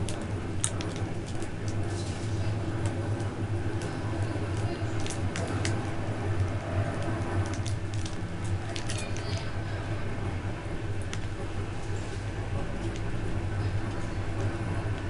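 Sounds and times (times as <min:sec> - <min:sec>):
train coach rumbling: 0:00.0 - 0:15.0
clicks and rattles: 0:02.8 - 0:09.4.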